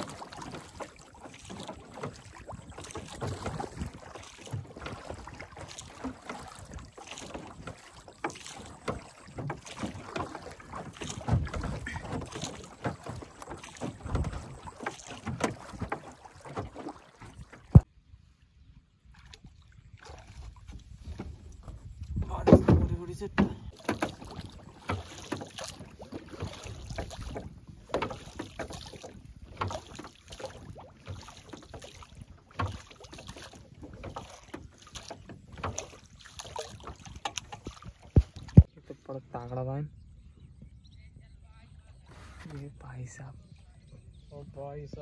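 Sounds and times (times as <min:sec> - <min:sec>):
water lapping against boat hull: 0:00.0 - 0:45.0
wind on microphone: 0:17.4 - 0:23.7.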